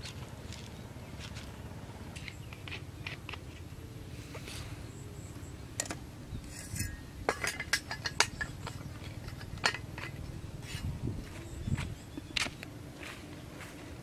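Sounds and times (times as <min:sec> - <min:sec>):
plastic bottle and tools clinking: 0:05.8 - 0:10.2.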